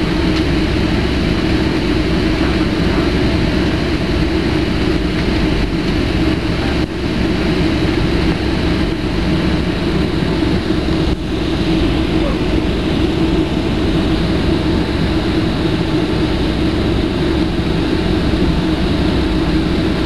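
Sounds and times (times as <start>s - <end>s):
jet cabin rumble while taxiing: 0.0s - 20.0s.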